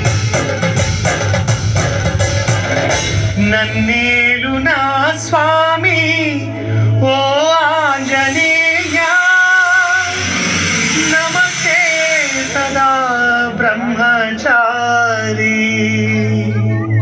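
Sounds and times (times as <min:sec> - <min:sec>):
low held drone: 0:02.1 - 0:15.2
solo voice singing: 0:03.3 - 0:17.0.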